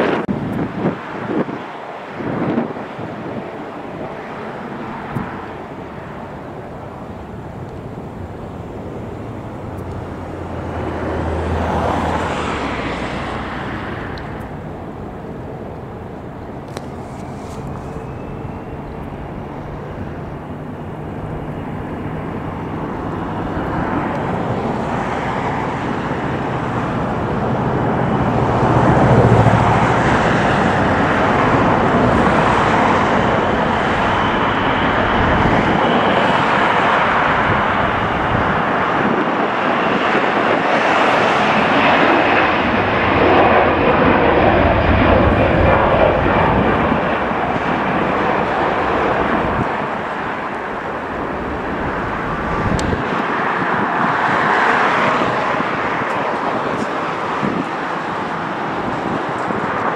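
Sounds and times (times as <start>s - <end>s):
jet airliner engine rushing: 0.0s - 59.9s.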